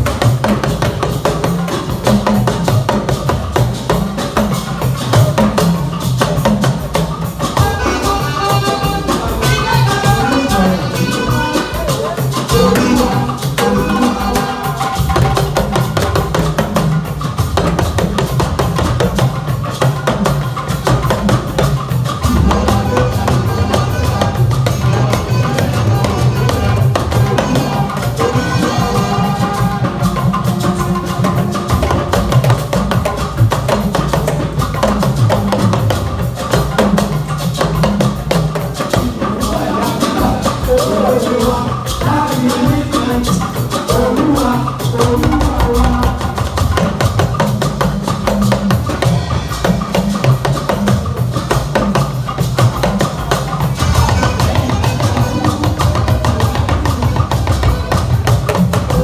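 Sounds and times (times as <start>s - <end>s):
hand percussion: 0.0s - 59.0s
talking drums struck with sticks: 0.0s - 59.0s.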